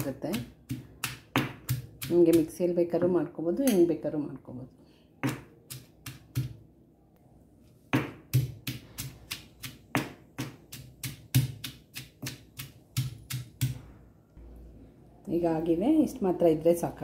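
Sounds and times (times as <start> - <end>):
pestle pounding in stone mortar: 0.0 - 2.5, 7.9 - 13.8.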